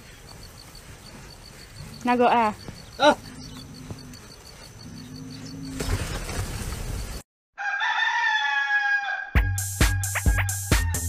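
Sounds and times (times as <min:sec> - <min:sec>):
rooster crowing: 0:07.6 - 0:09.6
music with drumbeat: 0:09.4 - 0:11.0.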